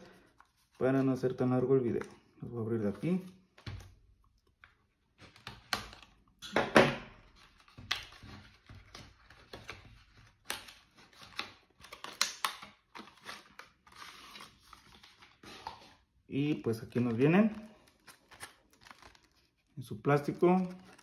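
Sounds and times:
cardboard and plastic crackling: 16.4 - 21.0.

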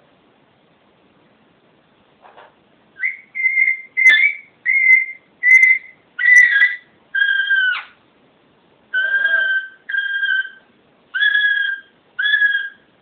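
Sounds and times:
parakeet whistled calls: 3.0 - 8.0, 8.9 - 12.9.

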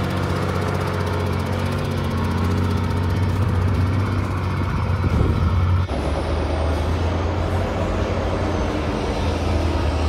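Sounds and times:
truck engines running under load: 0.0 - 10.0.

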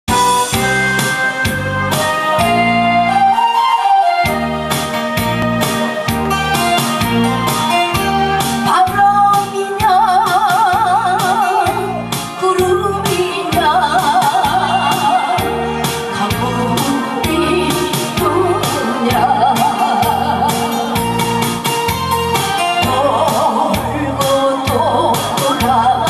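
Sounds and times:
backing track with steady beat: 0.1 - 26.0
woman singing into a microphone: 8.6 - 21.1, 22.6 - 26.0.

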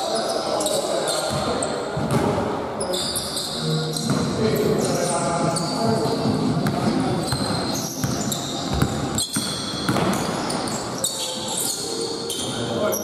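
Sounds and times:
shoes squeaking on floor: 0.0 - 2.2, 2.8 - 13.0
players' voices echoing: 0.0 - 13.0
basketball bouncing: 6.6 - 10.4.

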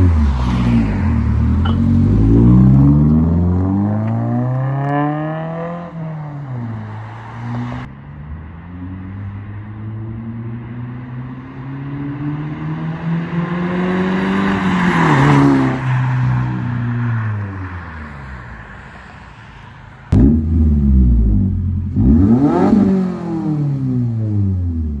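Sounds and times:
car engine revving: 0.0 - 7.9, 20.1 - 25.0.

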